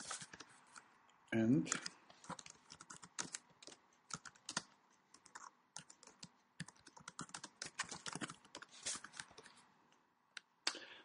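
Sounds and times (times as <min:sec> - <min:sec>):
typing on keyboard: 0:01.7 - 0:09.4.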